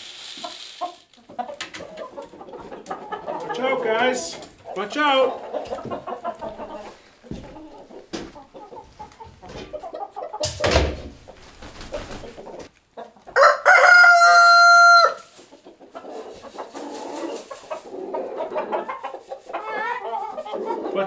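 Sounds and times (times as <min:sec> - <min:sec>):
chickens clucking: 0:00.2 - 0:21.0
brief thump: 0:10.4 - 0:11.2
rooster crowing: 0:13.4 - 0:15.3.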